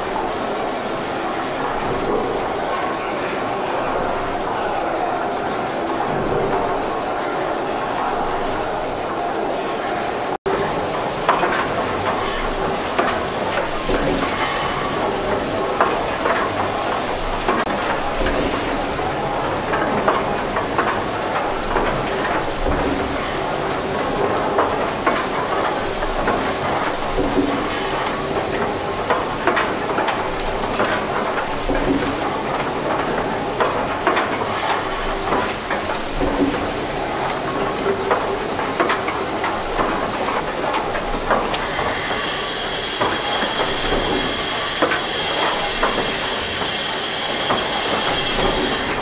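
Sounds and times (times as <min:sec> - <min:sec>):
steady steam hiss: 0:00.0 - 0:49.0
valve gear clatter: 0:10.5 - 0:49.0.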